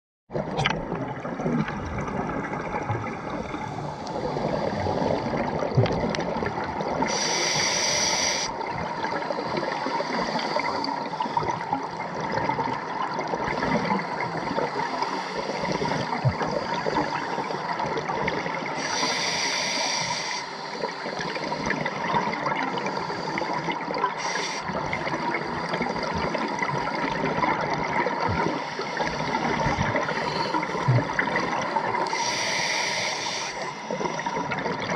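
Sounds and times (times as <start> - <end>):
diver's regulator breathing underwater: 3.0 - 6.0, 7.0 - 12.0, 18.7 - 34.9
bright regulator hiss: 7.1 - 8.5, 18.8 - 20.8, 24.2 - 24.7, 32.1 - 34.0.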